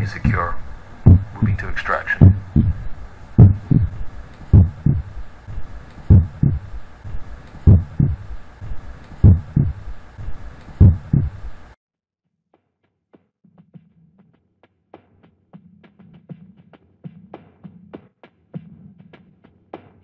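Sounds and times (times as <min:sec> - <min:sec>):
heartbeat double thumps: 0:00.0 - 0:11.8
steady hum: 0:00.0 - 0:11.8.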